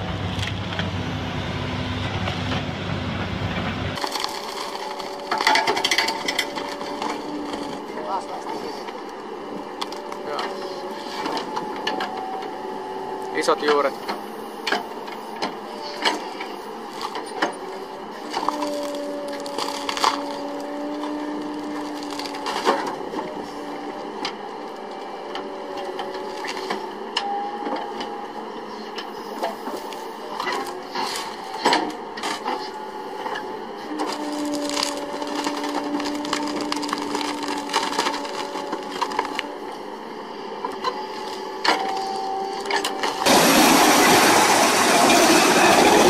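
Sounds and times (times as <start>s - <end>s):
machine whine: 0.0s - 46.0s
wood cracking and splintering: 4.0s - 12.2s, 15.9s - 28.1s, 29.4s - 39.8s, 40.6s - 46.0s.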